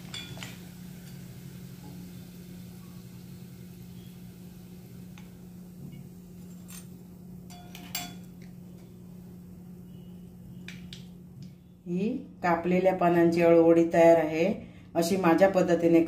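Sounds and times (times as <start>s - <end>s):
wire skimmer clinking on pan: 0.0s - 1.2s, 6.4s - 8.4s.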